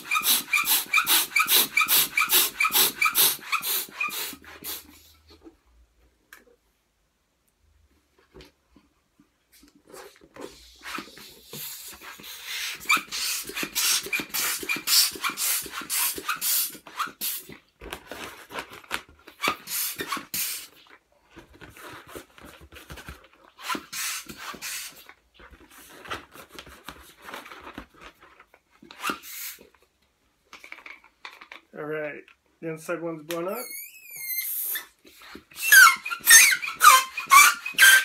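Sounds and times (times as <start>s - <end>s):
hand pump rushing air: 0.0s - 5.1s, 10.4s - 17.6s, 19.4s - 20.8s, 23.6s - 25.1s, 28.9s - 29.7s, 33.6s - 38.0s.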